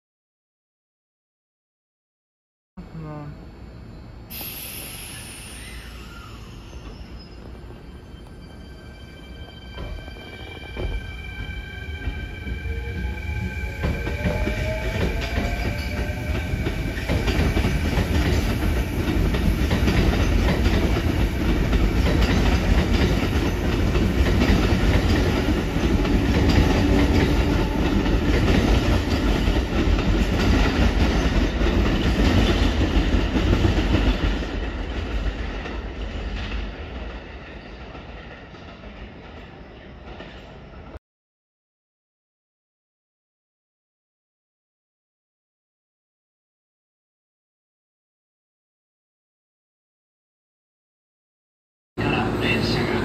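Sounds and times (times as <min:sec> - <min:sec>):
train motor whine: 0:04.3 - 0:08.6
train wheels clattering over rails: 0:13.8 - 0:40.7.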